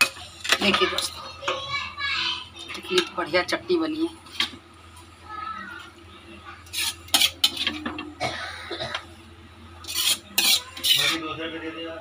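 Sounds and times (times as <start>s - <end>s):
utensil clinking against a dish: 6.6s - 9.1s, 9.8s - 11.3s.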